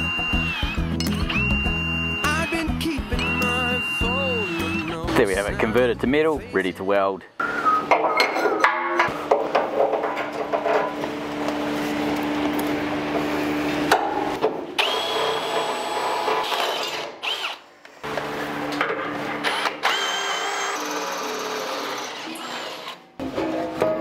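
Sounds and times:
cordless drill motor whine: 0.0 - 2.6, 14.8 - 17.6, 19.4 - 23.0
high squeal: 0.0 - 5.0.

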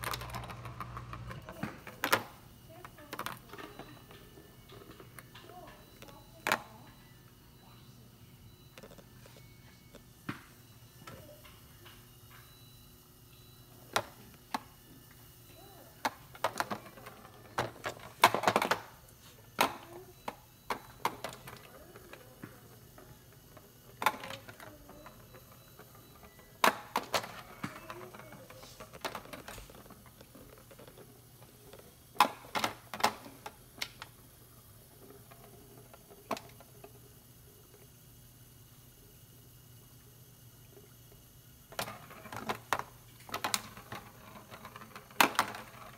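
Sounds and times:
ball clacking in plastic track: 0.0 - 6.7, 20.7 - 34.1, 41.7 - 45.9.

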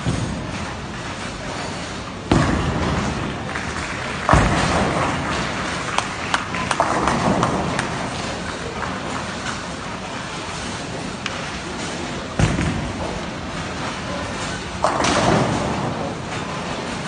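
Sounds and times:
bowling alley din: 0.0 - 17.0
ball crashing into pins: 2.3 - 8.3
bowling ball thudding on lane: 2.3 - 8.3.

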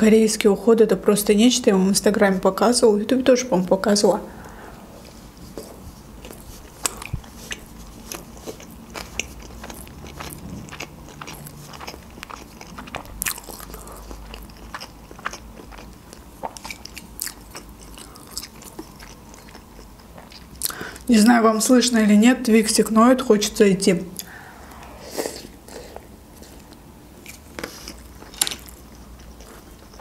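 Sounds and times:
crisp chewing crunches: 6.2 - 21.1, 26.4 - 30.0.

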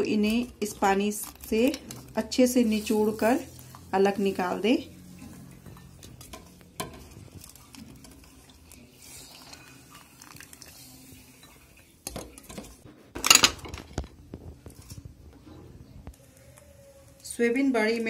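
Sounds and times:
wet squeezing by hand: 5.1 - 12.0
bowls and plate clattering: 11.5 - 15.0.

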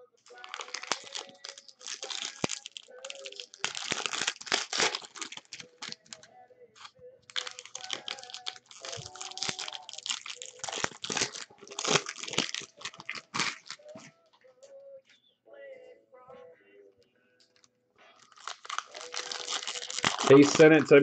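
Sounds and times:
foil wrappers crinkling and tearing: 0.3 - 14.1, 18.1 - 21.0.

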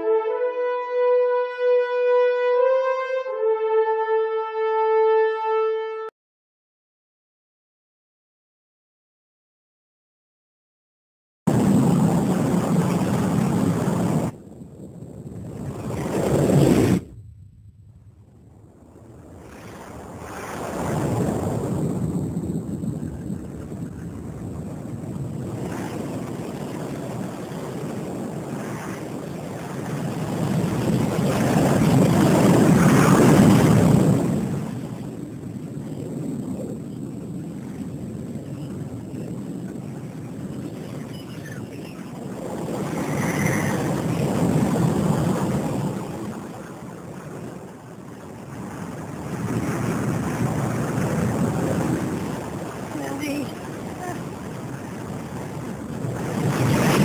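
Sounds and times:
rushing rumbling roar: 11.5 - 57.0.

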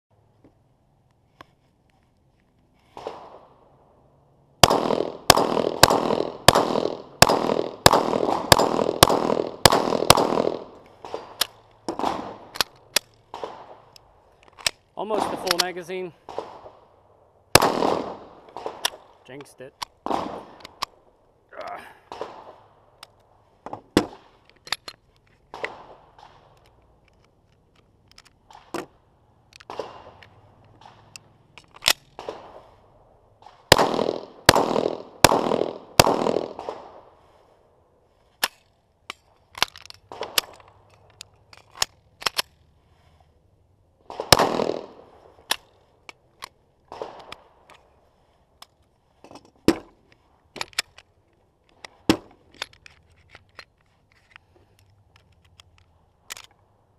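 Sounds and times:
pistol shots: 4.6 - 12.6, 13.3 - 13.8, 15.1 - 16.8, 17.5 - 19.1, 20.0 - 20.8, 22.1 - 22.7, 29.6 - 30.2, 32.1 - 32.7, 33.4 - 37.1, 44.1 - 45.6, 46.9 - 47.6.

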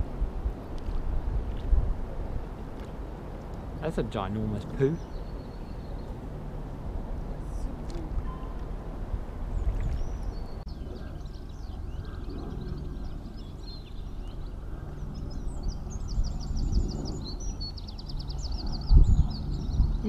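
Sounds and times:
steady low rumble: 0.0 - 20.0
small birds singing: 3.4 - 6.4, 9.4 - 20.0.

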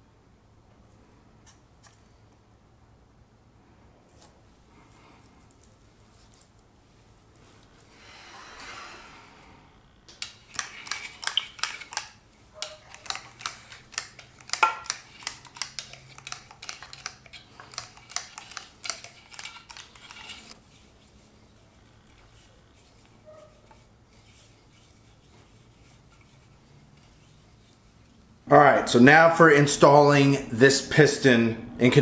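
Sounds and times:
hand tools clicking and clattering: 10.2 - 20.6.

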